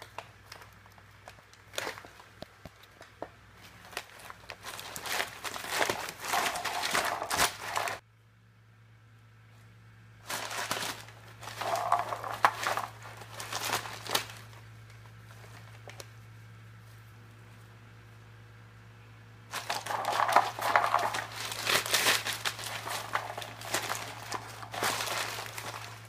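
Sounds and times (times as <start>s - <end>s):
packing paper crinkling: 0.0s - 8.0s, 10.3s - 16.1s, 19.5s - 26.0s.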